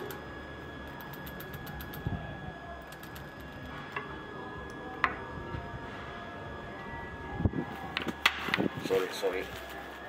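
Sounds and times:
faint high hum: 0.0 - 10.0.

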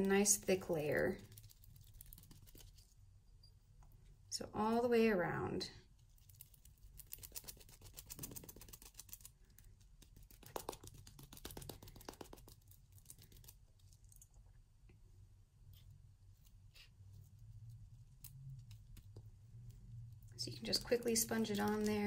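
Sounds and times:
sponge dabbing fine clicks: 6.2 - 15.0, 18.1 - 22.0.

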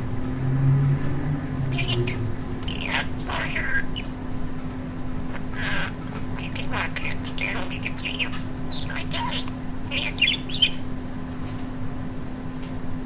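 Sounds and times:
budgerigar chattering: 1.7 - 4.1, 5.3 - 10.9.

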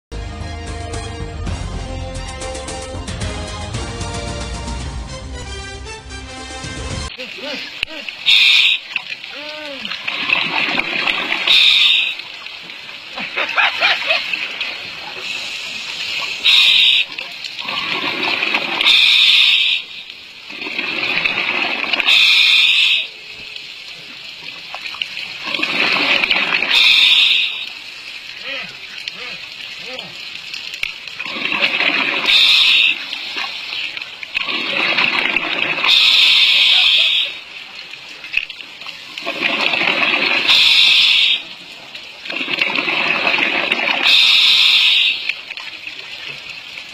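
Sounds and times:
gurgling exhaust bubbles: 14.7 - 19.7, 20.4 - 22.9, 25.3 - 30.2, 31.1 - 37.5, 39.2 - 45.6
regulator inhale hiss: 15.2 - 17.1, 22.1 - 23.1, 44.0 - 45.3.

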